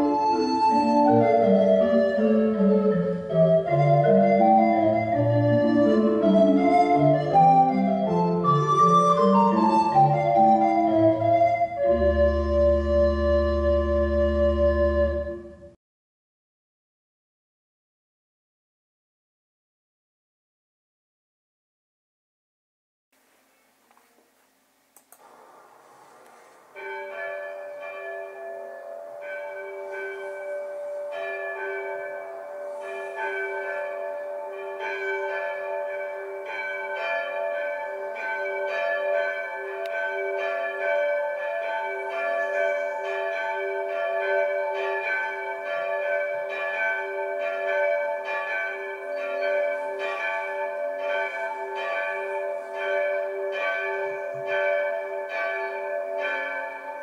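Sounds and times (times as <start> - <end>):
church bells pealing: 0.0 - 15.3, 25.2 - 57.0.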